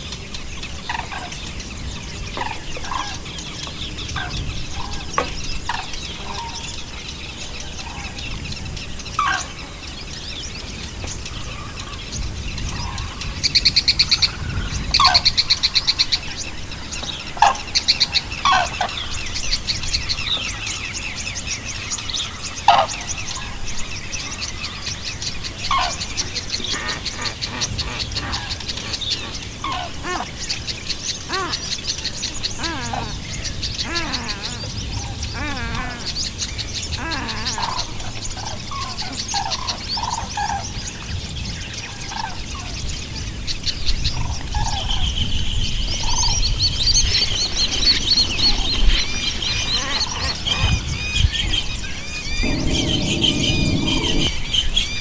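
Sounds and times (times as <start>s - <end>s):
birds chirping and calling: 0.0s - 55.0s
loud rapid bird trills: 44.7s - 55.0s
short falling bird calls: 52.2s - 54.4s.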